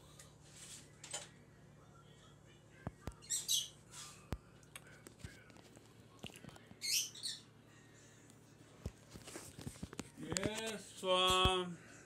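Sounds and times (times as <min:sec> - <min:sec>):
bird chirping: 0:06.8 - 0:07.5.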